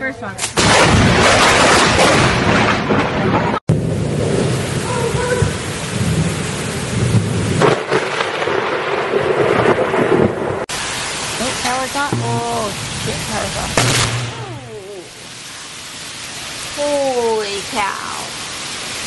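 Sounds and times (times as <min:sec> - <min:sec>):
thunder crash: 0:00.6 - 0:11.0, 0:12.0 - 0:14.6
heavy rain pouring: 0:00.6 - 0:19.0
thunder rumbling: 0:00.6 - 0:19.0.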